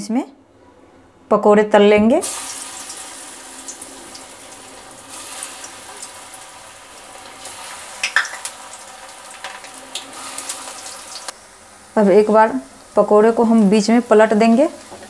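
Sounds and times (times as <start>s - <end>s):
oil popping and crackling: 2.2s - 11.3s
batter deep-frying in hot oil: 2.2s - 15.0s.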